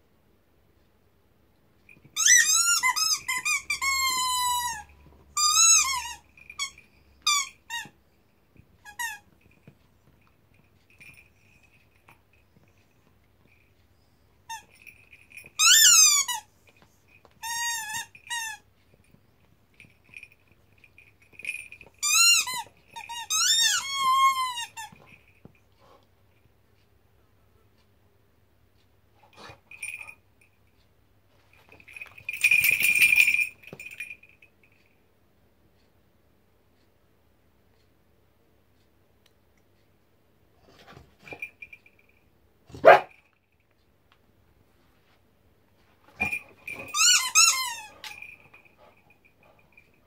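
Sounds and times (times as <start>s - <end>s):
dog chewing squeaky toy: 2.0s - 8.0s, 8.8s - 9.8s, 14.4s - 16.6s, 17.2s - 18.7s, 21.3s - 25.3s, 46.1s - 49.9s.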